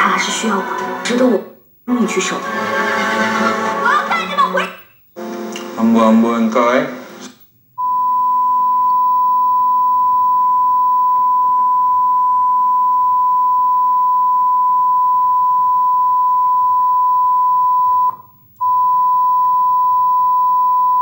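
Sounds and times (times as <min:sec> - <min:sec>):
single-pitch test tone: 0:07.8 - 0:21.0.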